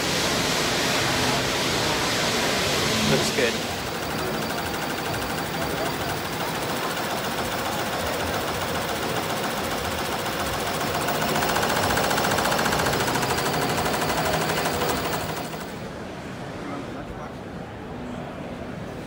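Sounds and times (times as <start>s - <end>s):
embroidery machine stitching: 3.4s - 15.9s.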